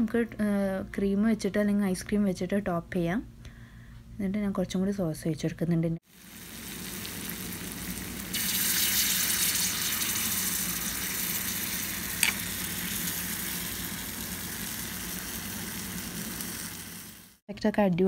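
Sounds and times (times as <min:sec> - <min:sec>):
sauce sizzling on hot plate: 0:06.0 - 0:17.4.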